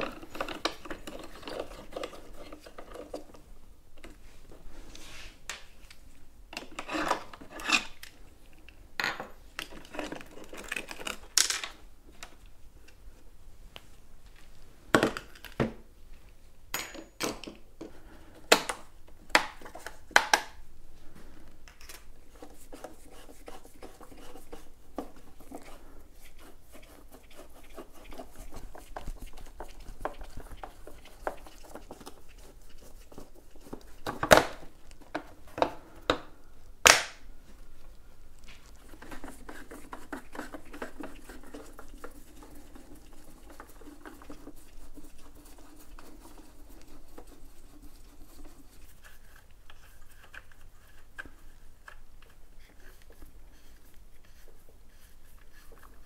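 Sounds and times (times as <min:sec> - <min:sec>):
rubbing and scraping: 0:00.0 - 0:03.4, 0:22.2 - 0:35.6, 0:38.5 - 0:56.0.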